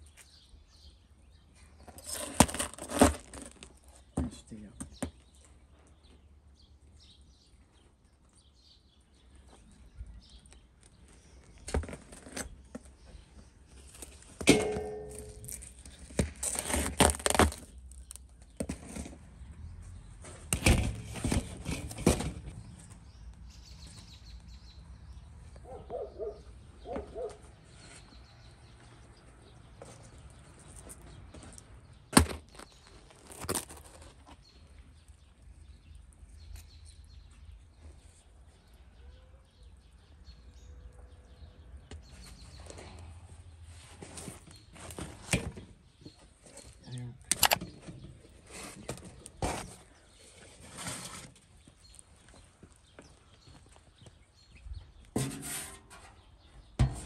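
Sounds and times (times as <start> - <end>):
metal scraping inside clay oven: 1.7 - 4.0, 14.0 - 19.5, 20.2 - 23.0, 47.3 - 51.5, 55.1 - 57.0
metal tools knocking on clay oven: 14.4 - 15.6, 55.1 - 57.0.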